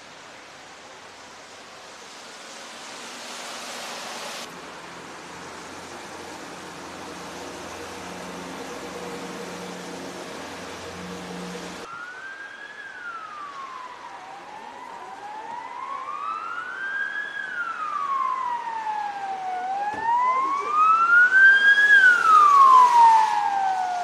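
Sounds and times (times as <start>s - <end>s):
emergency siren wailing: 6.4s - 24.0s.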